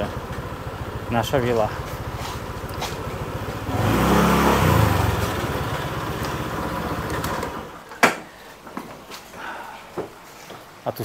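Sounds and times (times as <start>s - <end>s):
small motorbike engine revving: 0.0s - 7.8s.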